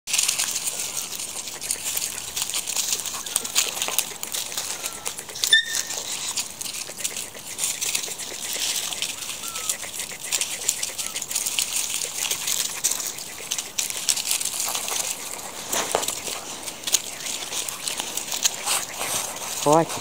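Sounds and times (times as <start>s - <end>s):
dry leaves rustling and crackling: 0.1s - 20.0s
short high squeak: 4.9s - 6.0s.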